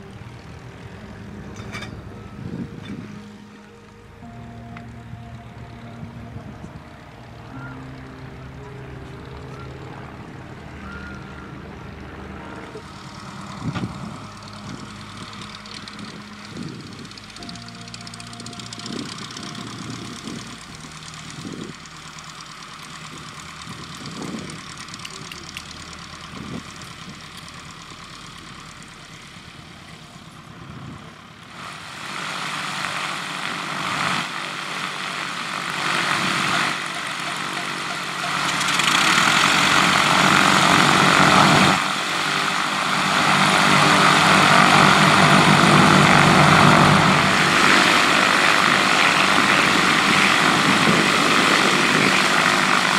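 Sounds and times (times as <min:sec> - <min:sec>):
light aircraft propeller engines: 0:00.0 - 0:52.9.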